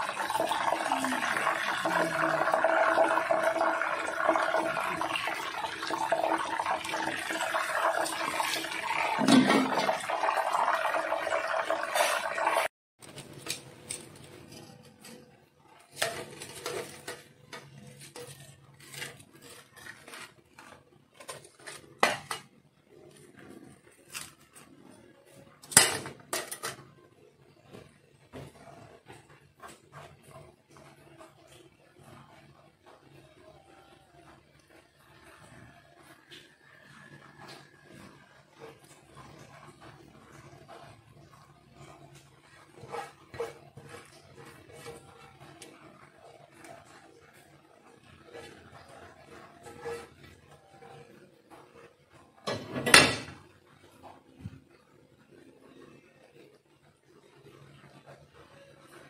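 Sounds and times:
tongs scraping and clinking on pan: 13.4 - 22.4, 37.8 - 53.0.

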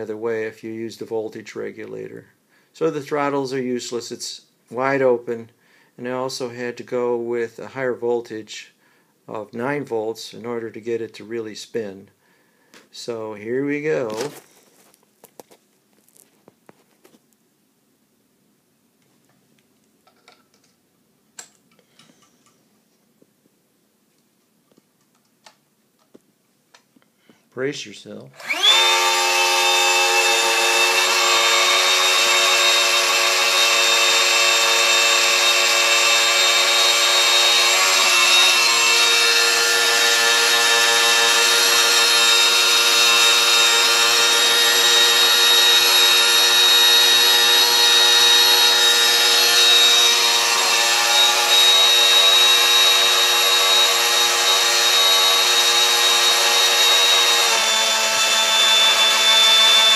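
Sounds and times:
small electric motor whirring: 28.4 - 59.9.

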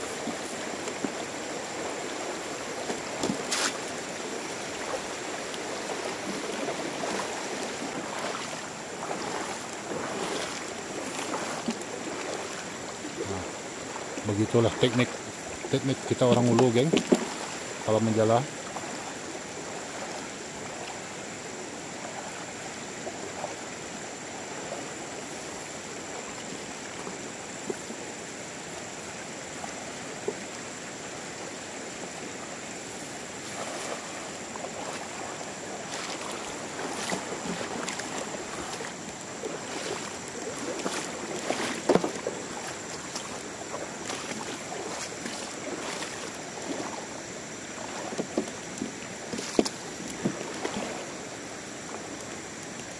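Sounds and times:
shallow river running over stones: 0.0 - 52.9
splashing from person wading: 0.0 - 52.9
cast net hitting water: 33.4 - 43.4, 47.8 - 51.0.

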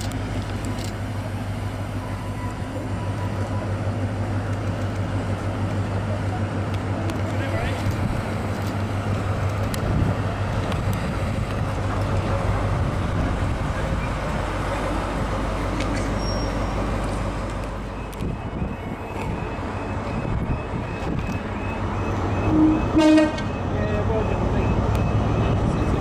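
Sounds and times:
diesel engine droning: 0.0 - 26.0
outdoor background: 0.0 - 26.0.

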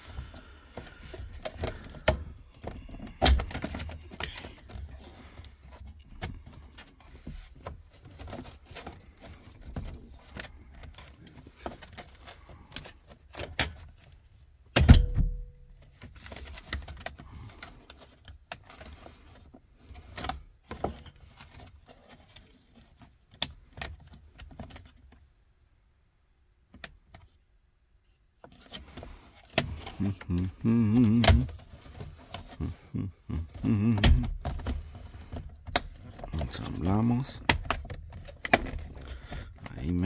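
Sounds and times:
low muttering voice: 30.0 - 31.5, 32.6 - 34.3.

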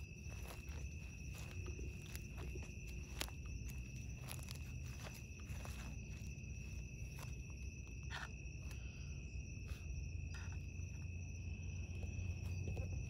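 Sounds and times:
footsteps: 0.0 - 8.4
crickets trilling: 0.0 - 13.0.

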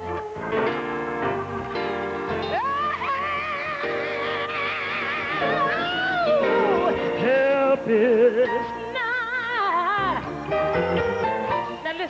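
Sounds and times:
sustained instrumental accompaniment: 0.0 - 12.0
woman singing gospel: 2.4 - 10.3.

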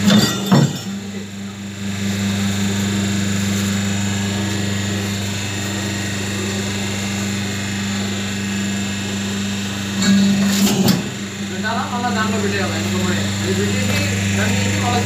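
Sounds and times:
paper plate machine humming: 0.0 - 15.0.

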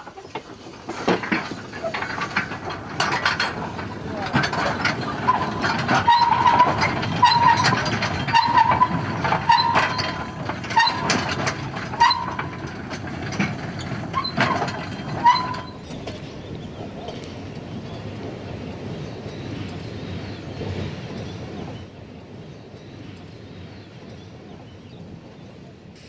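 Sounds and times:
wheel squeal: 0.0 - 18.0
wagon wheels clattering on rails: 0.0 - 25.8.

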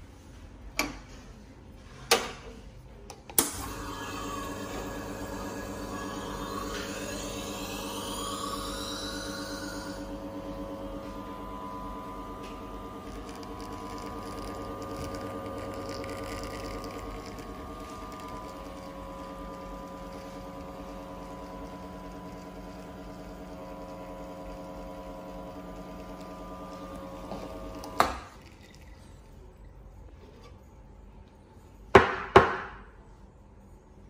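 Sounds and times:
espresso machine pump humming: 3.4 - 31.7
espresso running into cup: 3.5 - 30.7.

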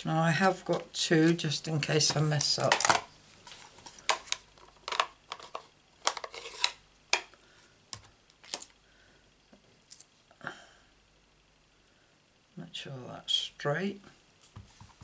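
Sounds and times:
soft scuffing: 14.5 - 15.0.

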